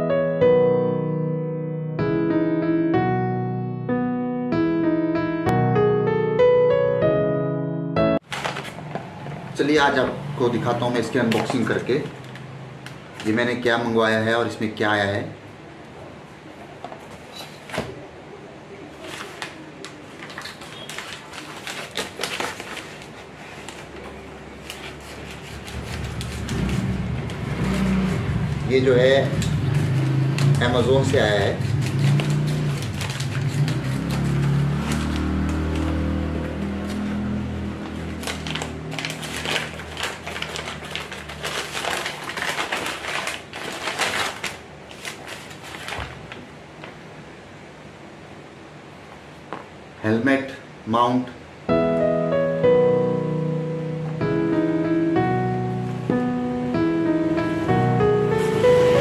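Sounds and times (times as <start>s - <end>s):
paper envelope crinkling: 8.2s - 9.0s, 19.0s - 29.2s, 29.8s - 36.1s, 37.8s - 46.5s.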